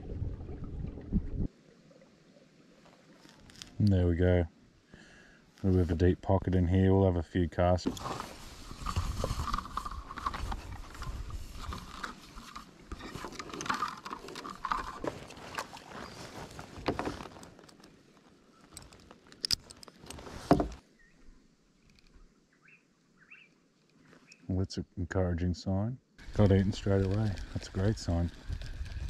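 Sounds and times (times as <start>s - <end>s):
knocks and clicks on kayak hull: 19.4s - 20.8s.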